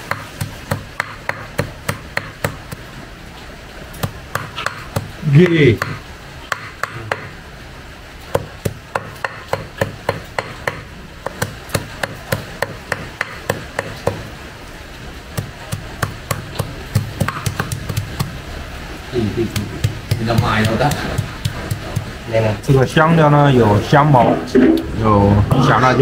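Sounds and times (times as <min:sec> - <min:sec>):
cleaver chopping on wooden block: 0:00.0 - 0:02.8, 0:04.0 - 0:05.1, 0:05.8 - 0:07.3, 0:08.4 - 0:14.3, 0:15.4 - 0:18.3, 0:19.6 - 0:22.1.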